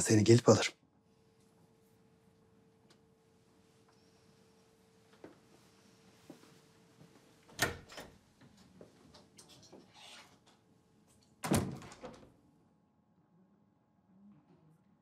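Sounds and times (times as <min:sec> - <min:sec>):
door clacking open: 0:07.6 - 0:08.2
door closing thud: 0:11.4 - 0:12.3.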